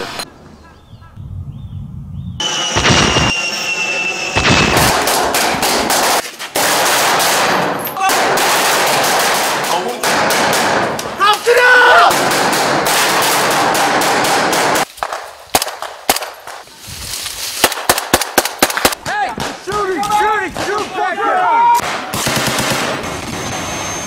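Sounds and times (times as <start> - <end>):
rushing noise: 2.4 - 5.9
rifle and machine-gun shots: 2.8 - 3.3, 4.4 - 11.2, 12.1 - 16.6, 17.6 - 19.6, 21.8 - 24.0
voices calling out: 11.0 - 12.2.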